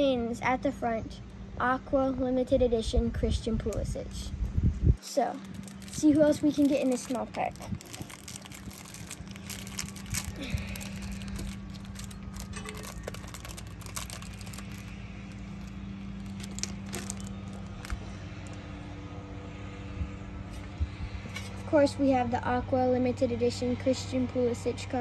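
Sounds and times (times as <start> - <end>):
steady low hum: 0.0 - 25.0
plastic wrapper crinkling: 5.1 - 18.6.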